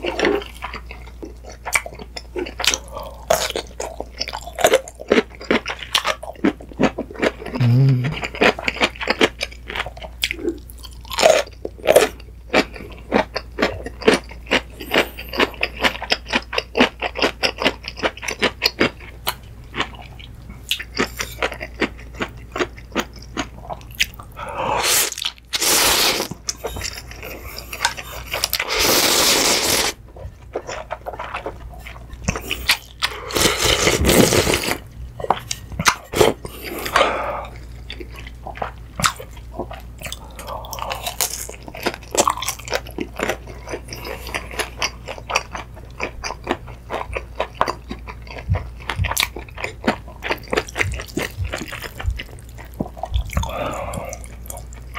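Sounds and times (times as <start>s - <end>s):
wet chewing: 0.0s - 54.9s
slurping noodles: 24.6s - 26.4s, 28.2s - 30.0s, 33.1s - 34.8s.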